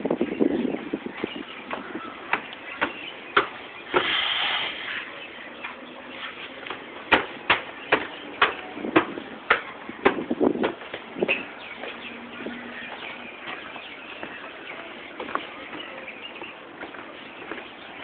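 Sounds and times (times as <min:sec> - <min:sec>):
footsteps on wooden stairs: 0:01.1 - 0:04.1, 0:05.6 - 0:18.0
short hiss: 0:03.9 - 0:05.0.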